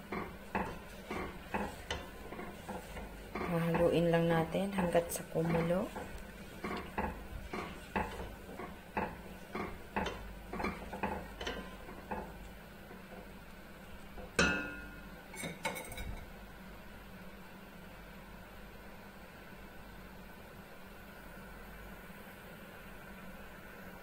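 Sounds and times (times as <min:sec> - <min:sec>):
wooden spoon stirring in a pot: 0:00.0 - 0:16.3.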